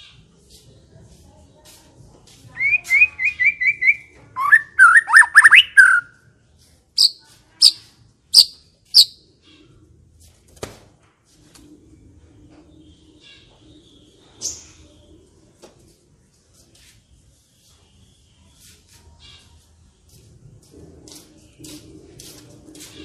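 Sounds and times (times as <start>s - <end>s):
bird singing whistled notes: 2.6s - 6.1s, 7.0s - 7.8s, 8.4s - 9.2s.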